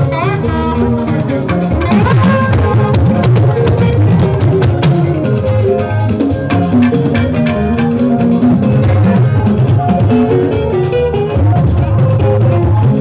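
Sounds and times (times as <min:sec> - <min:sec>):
drum kit beat: 0:00.0 - 0:13.0
electric guitar lines: 0:00.0 - 0:13.0
live band playing party music: 0:00.0 - 0:13.0.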